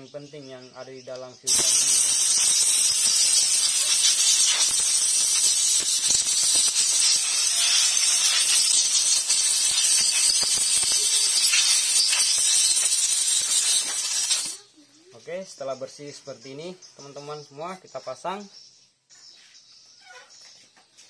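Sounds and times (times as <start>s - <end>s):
air blow gun hissing: 1.5s - 14.6s.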